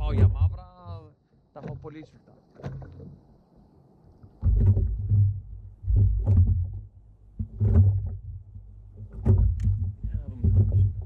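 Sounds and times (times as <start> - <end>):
water surging against kayak hull: 0.0 - 11.0.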